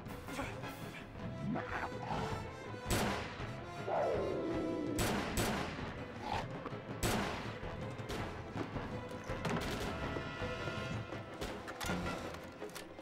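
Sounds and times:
dramatic music score: 0:00.0 - 0:13.0
gunshots: 0:02.8 - 0:03.6, 0:05.0 - 0:06.2, 0:07.0 - 0:08.3.

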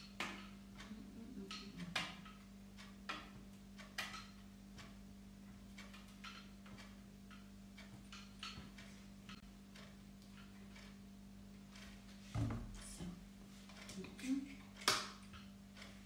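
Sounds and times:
light clicks and knocks: 0:00.0 - 0:11.0.

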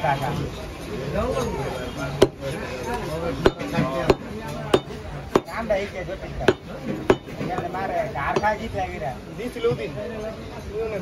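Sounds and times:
cleaver chopping on wooden block: 0:02.2 - 0:02.4, 0:03.4 - 0:05.6, 0:06.4 - 0:07.7.

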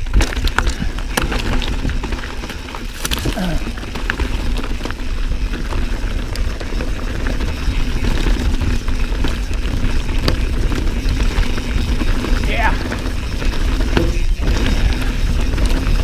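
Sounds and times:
bike clicks and rattles: 0:00.0 - 0:16.0
bike tyre noise: 0:00.0 - 0:16.0
wind buffeting microphone: 0:03.2 - 0:16.0.

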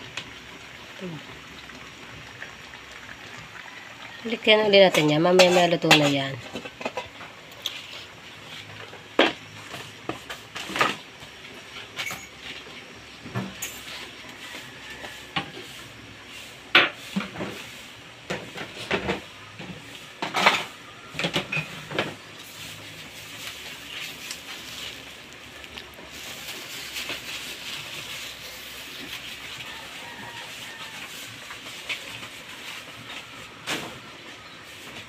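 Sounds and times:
metal cookware clinking: 0:11.8 - 0:12.5.

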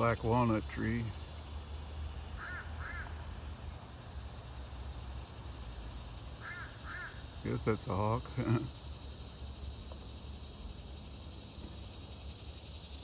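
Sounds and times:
insects chorus: 0:00.0 - 0:13.0
crows cawing: 0:02.4 - 0:03.2, 0:06.4 - 0:07.2.

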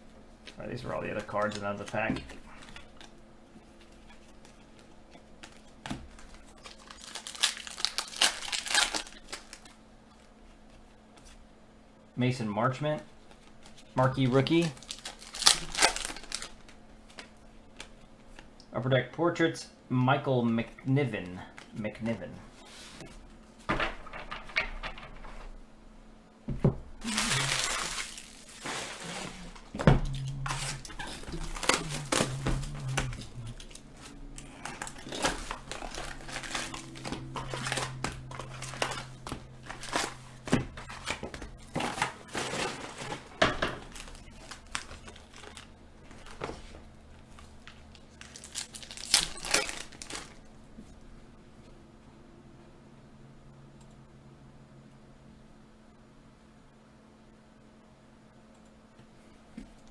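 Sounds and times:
foil wrapper crinkling: 0:00.6 - 0:09.8, 0:13.4 - 0:17.9, 0:27.0 - 0:50.5.

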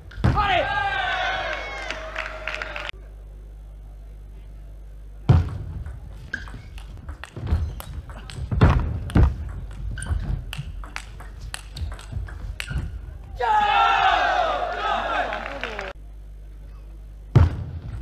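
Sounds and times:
loud shout: 0:00.3 - 0:02.9, 0:13.3 - 0:16.0
crowd cheering: 0:00.4 - 0:03.0, 0:13.3 - 0:16.0.

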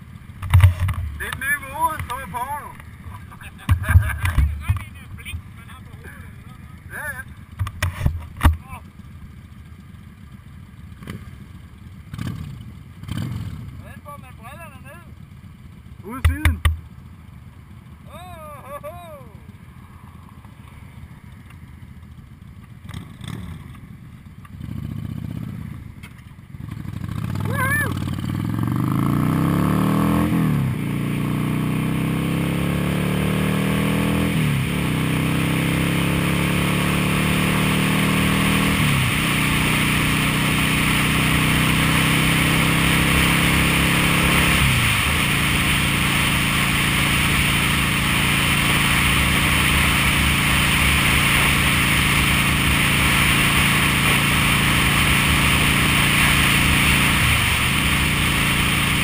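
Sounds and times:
motorcycle accelerating through gears: 0:00.0 - 0:18.2, 0:19.1 - 0:59.0.

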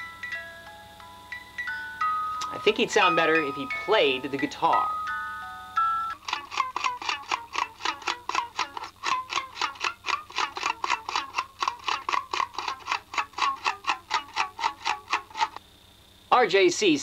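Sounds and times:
guitar picked fast: 0:05.9 - 0:15.6.

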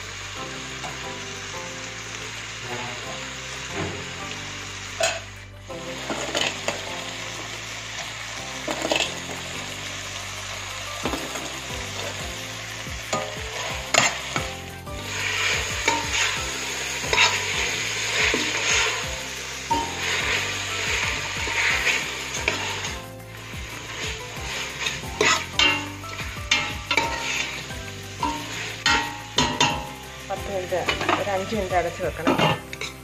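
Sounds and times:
food sizzling in pot: 0:00.0 - 0:33.0
spoon knocking and scraping pot: 0:24.8 - 0:27.6, 0:28.2 - 0:30.0, 0:32.2 - 0:33.0.

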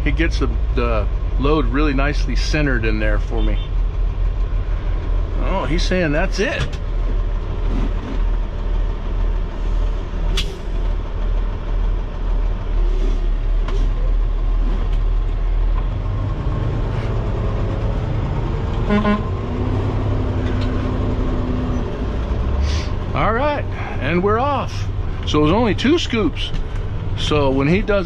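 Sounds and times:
diesel engine idling: 0:00.0 - 0:28.0
horn toot: 0:18.8 - 0:19.4.

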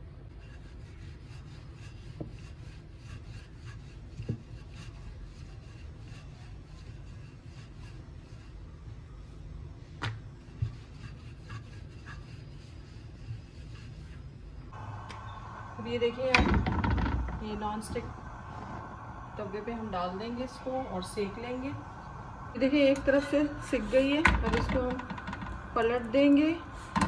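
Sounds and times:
rolling pin rubbing over dough: 0:00.2 - 0:14.7.

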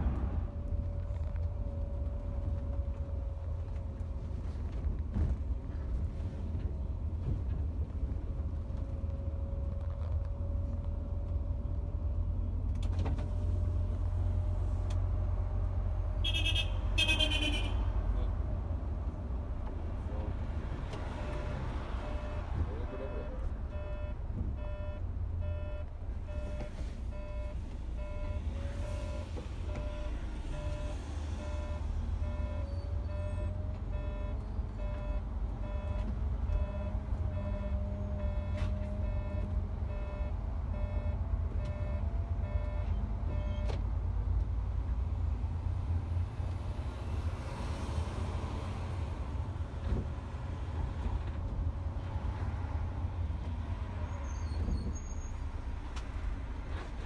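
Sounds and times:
diesel engine and road rumble: 0:00.0 - 0:57.0
electronic warning beep: 0:21.2 - 0:43.7.

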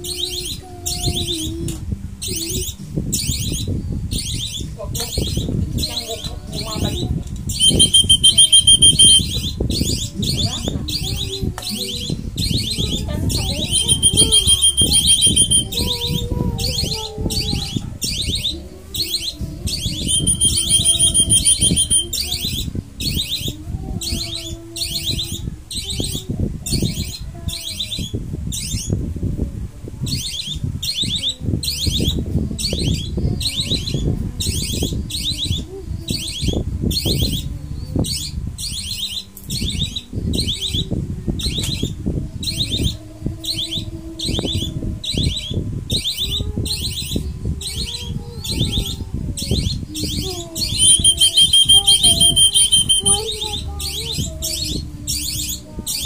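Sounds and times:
whistle trilling blasts: 0:07.6 - 0:09.4, 0:13.6 - 0:15.8, 0:20.0 - 0:22.2, 0:50.8 - 0:53.3.

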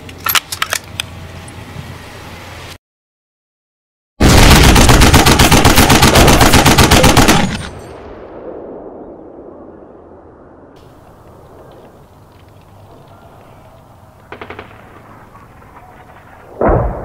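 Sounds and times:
machine-gun fire: 0:04.2 - 0:07.8, 0:14.3 - 0:15.2.

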